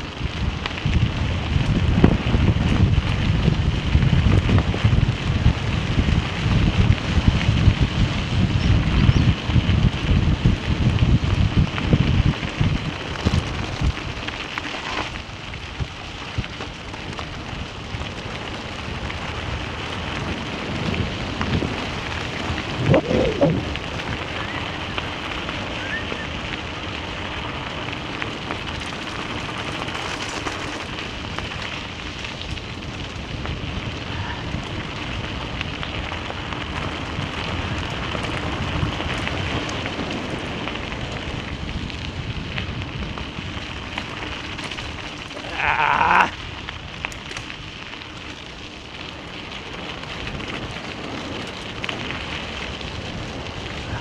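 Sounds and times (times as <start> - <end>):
wind on microphone: 0.0 - 14.2, 18.8 - 27.0, 31.1 - 47.6, 49.8 - 54.0
bicycle tyres crunching on gravel: 0.0 - 54.0
bike and camera rattling: 0.0 - 54.0.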